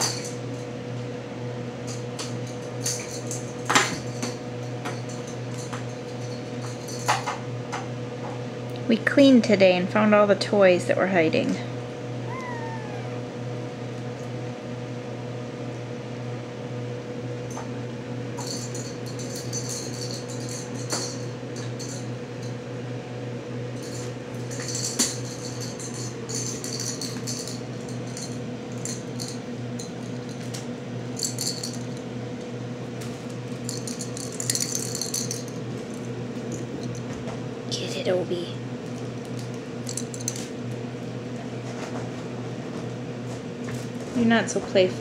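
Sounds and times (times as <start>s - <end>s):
cat toys jingling and rattling: 2.0s - 7.3s, 18.4s - 22.6s, 23.8s - 30.5s, 31.1s - 32.1s, 33.5s - 37.2s, 39.2s - 40.5s.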